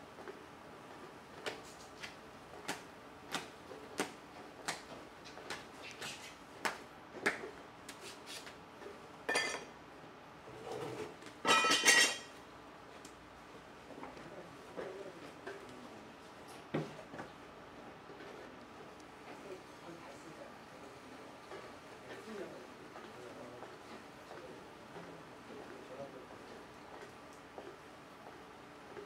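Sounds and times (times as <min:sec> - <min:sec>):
ringing clatter of hard ware: 0:11.4 - 0:12.3
ringing clink of hard ware: 0:11.5 - 0:12.3.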